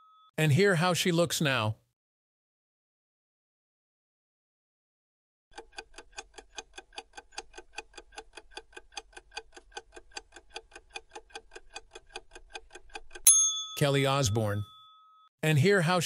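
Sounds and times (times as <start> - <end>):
clock ticking fast: 5.5 - 13.3.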